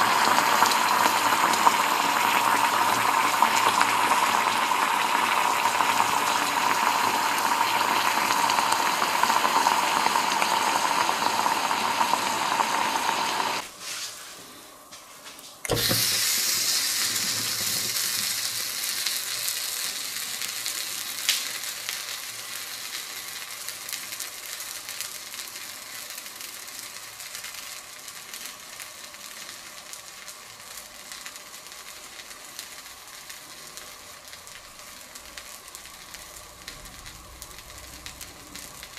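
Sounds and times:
honey sizzling on hot metal: 0.0s - 13.7s, 15.7s - 38.9s.

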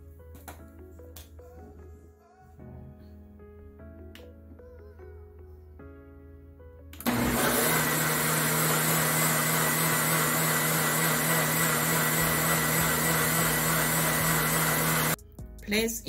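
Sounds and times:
blender motor whirring: 7.0s - 15.2s.

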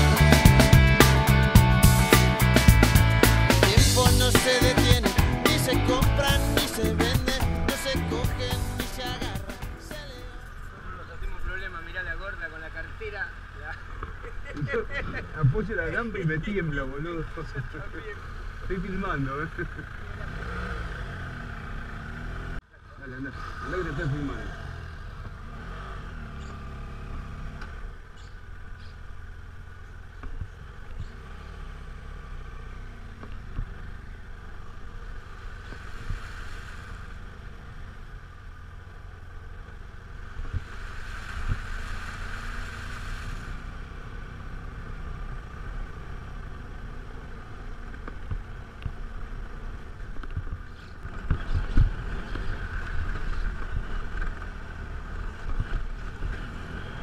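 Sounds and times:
motorcycle engine running: 0.0s - 57.0s
tyres spraying through puddles: 40.6s - 43.7s
wind rumble on microphone: 41.3s - 41.9s.

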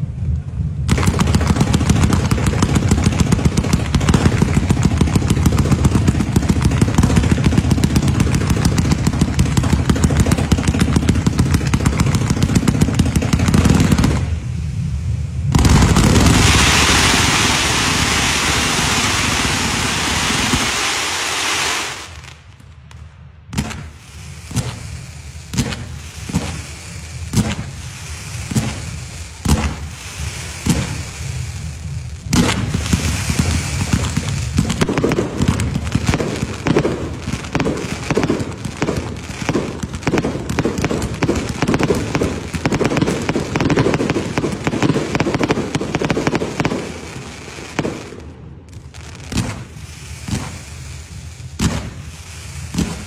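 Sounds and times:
firework shots: 0.0s - 53.0s
fireworks crackling hiss: 0.0s - 53.0s
rapid firework cracks and pops: 0.3s - 14.5s, 15.4s - 53.0s.

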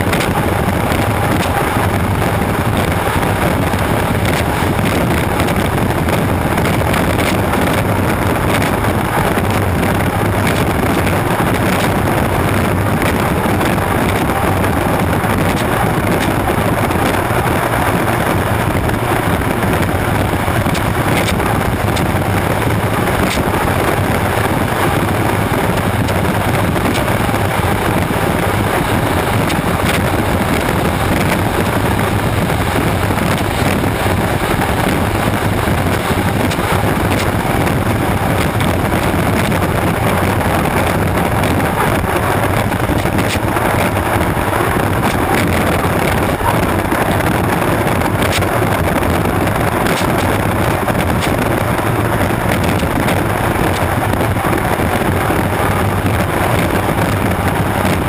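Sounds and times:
loud boat engine rush: 0.0s - 58.0s
wind buffeting microphone: 0.0s - 58.0s.

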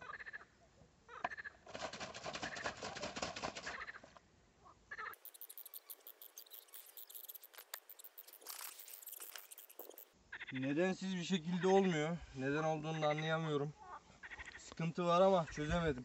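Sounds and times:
frogs croaking: 4.9s - 11.8s, 13.8s - 14.7s.

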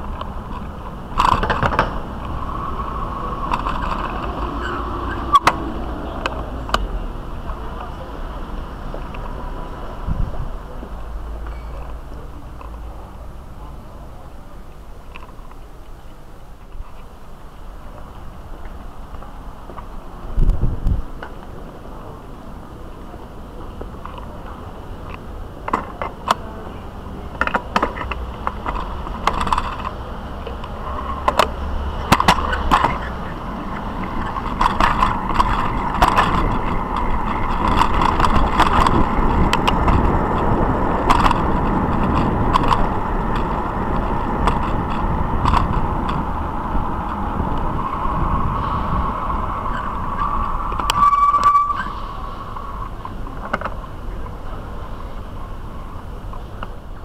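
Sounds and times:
bike clicks and rattling knocks: 0.0s - 8.0s, 23.7s - 26.6s, 27.3s - 48.6s
bicycle tyres rumbling: 0.0s - 57.0s
short squeal: 2.5s - 5.5s, 47.9s - 53.0s.

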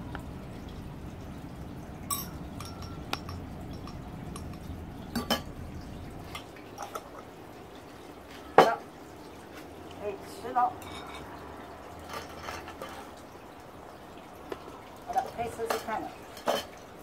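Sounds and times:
metal spoon clinking on glass jar: 2.1s - 4.6s.

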